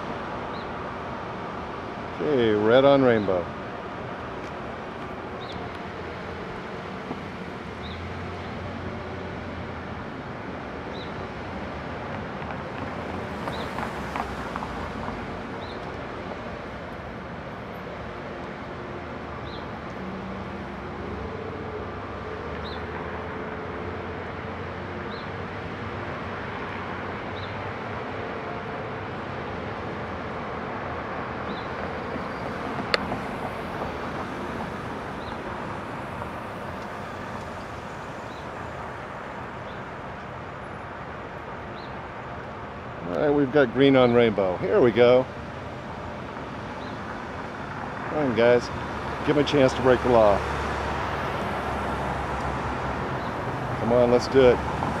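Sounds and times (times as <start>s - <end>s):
road traffic: 0.0s - 55.0s.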